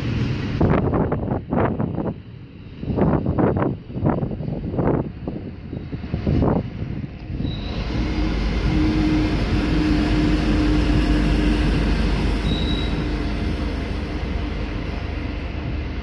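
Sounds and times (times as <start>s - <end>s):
train rumble: 0.0s - 16.0s
diesel engines humming: 3.7s - 16.0s
brief high squeal: 7.4s - 7.9s, 12.4s - 13.1s.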